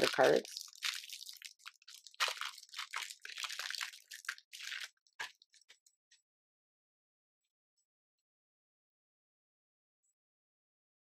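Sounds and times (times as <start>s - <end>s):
plastic wrap tearing and crinkling: 0.0s - 5.6s.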